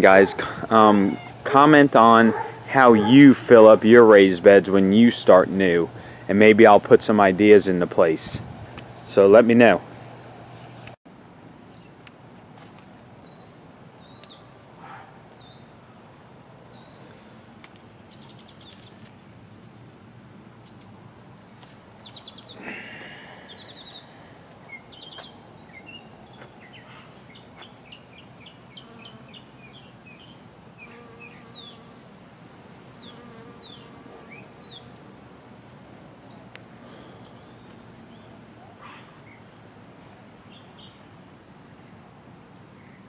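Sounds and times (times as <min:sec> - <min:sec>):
small birds chirping and trilling: 0:13.2 - 0:15.9, 0:16.6 - 0:17.2, 0:17.9 - 0:35.1, 0:36.3 - 0:41.1.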